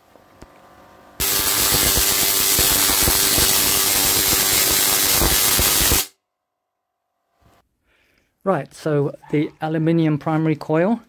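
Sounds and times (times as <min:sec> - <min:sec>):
steady electrical buzz: 0:00.0 - 0:06.2
tesla coil sparks crackling: 0:01.2 - 0:06.2.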